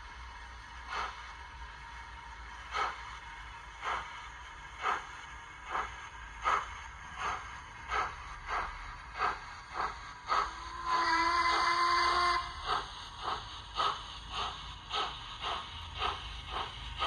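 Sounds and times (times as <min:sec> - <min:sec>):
steam exhaust chuffs from speaker: 0:04.8 - 0:17.0.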